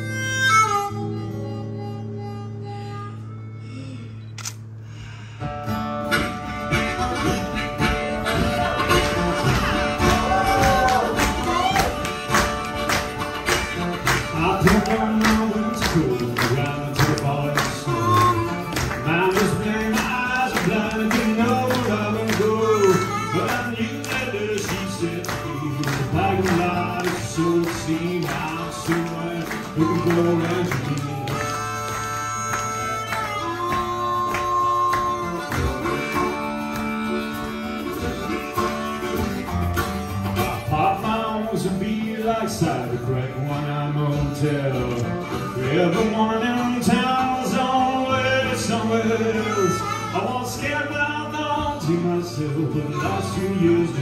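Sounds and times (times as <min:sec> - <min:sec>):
strummed acoustic guitars: 0:04.6 - 0:54.0
drums and percussion: 0:06.0 - 0:49.2
person singing: 0:14.2 - 0:38.6, 0:40.4 - 0:54.0.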